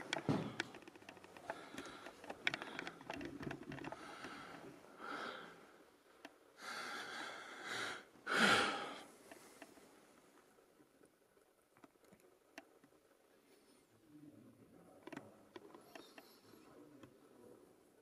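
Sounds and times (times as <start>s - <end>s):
camera handling clicks and rustles: 0.0s - 4.4s
breathing close to microphone: 1.4s - 5.7s.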